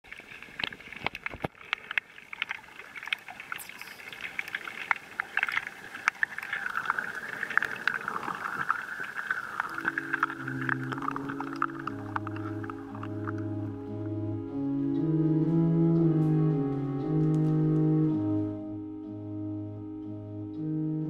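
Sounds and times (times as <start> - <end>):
dense crackle of sharp clicks: 0.1 - 14.1
low organ notes: 9.8 - 21.0.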